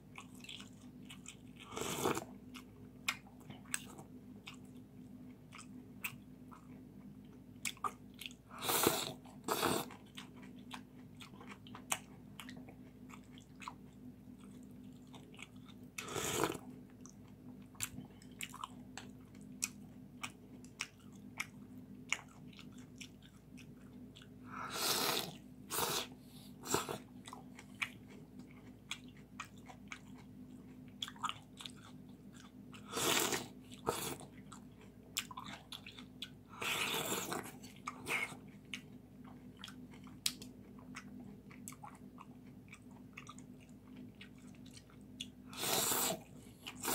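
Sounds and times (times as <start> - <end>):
chewing and smacking: 0.0 - 24.5, 26.6 - 46.9
slurping noodles: 1.7 - 2.2, 8.6 - 9.9, 16.0 - 16.6, 24.7 - 27.0, 32.9 - 34.2, 45.5 - 46.9.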